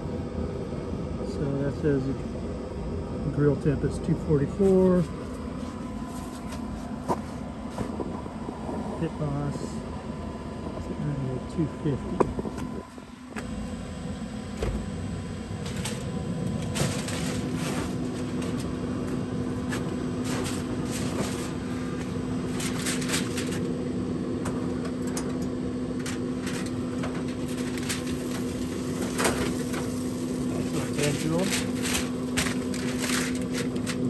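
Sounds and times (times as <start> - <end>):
smoker motor hum: 0.0 - 34.0
aluminium foil crinkling: 15.6 - 18.7, 20.2 - 23.7, 26.0 - 34.0
smoker door and racks clattering: 26.0 - 34.0.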